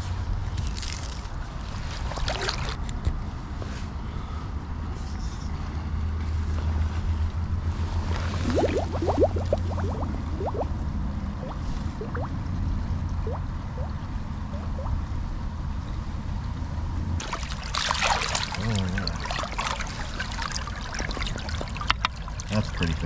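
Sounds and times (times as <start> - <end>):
stream water gurgling: 1.8 - 2.9, 8.1 - 10.8, 11.4 - 12.4, 13.0 - 15.0, 17.2 - 23.0
low rumble: 7.8 - 15.5
water splashing and dripping: 8.4 - 10.7, 11.4 - 12.3, 13.2 - 14.0, 17.2 - 23.0
bubbly chirps: 8.4 - 10.8, 11.4 - 12.4, 13.2 - 15.0, 17.2 - 23.0.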